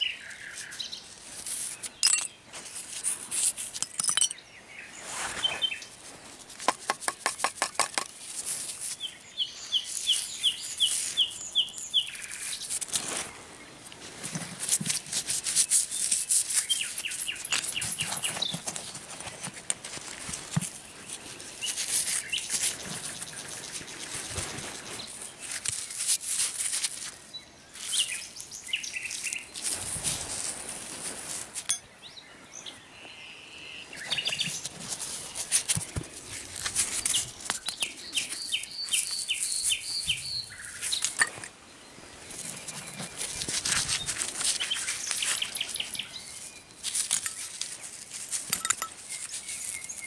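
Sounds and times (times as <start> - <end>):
nightingale singing: 0.0 - 2.5, 3.8 - 6.0, 8.9 - 13.8, 15.7 - 19.0, 20.8 - 25.6, 27.1 - 29.8, 31.6 - 50.0
gloved hand rummaging through soil: 0.0 - 4.0, 4.9 - 31.7, 33.9 - 50.0.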